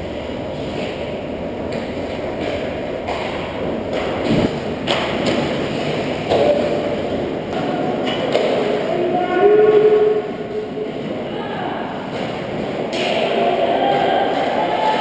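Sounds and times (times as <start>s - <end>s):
hockey sticks knocking puck: 1.7s - 8.9s, 12.1s - 15.0s.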